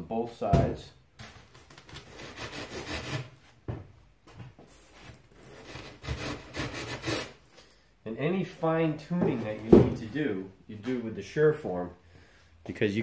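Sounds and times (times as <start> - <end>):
hand tool scraping foam board: 1.9 - 3.3, 5.3 - 7.4.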